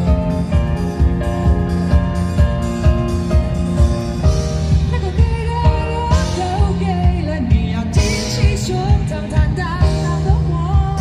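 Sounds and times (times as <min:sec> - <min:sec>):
live pop band over pa: 0:00.0 - 0:11.0
person singing: 0:05.0 - 0:11.0.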